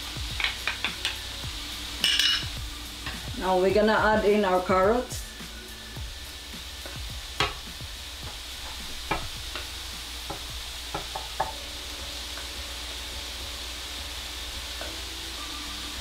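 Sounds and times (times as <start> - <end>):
food sizzling in a skillet: 0.0 - 16.0
spatula knocking bowl and pan: 0.4 - 1.2, 7.4 - 9.7, 10.3 - 11.6.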